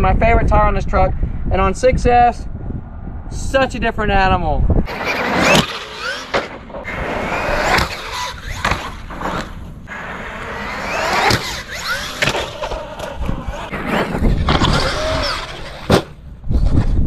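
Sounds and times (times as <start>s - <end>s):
tyres rasping on concrete: 4.9s - 15.9s
electric motor whining: 4.9s - 16.0s.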